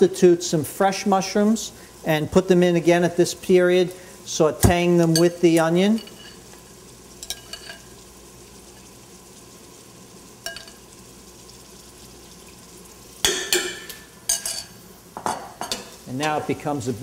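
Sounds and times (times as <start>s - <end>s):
pot sizzling: 0.0s - 17.0s
spoon clinking in mesh strainer: 7.2s - 7.9s, 10.4s - 10.8s.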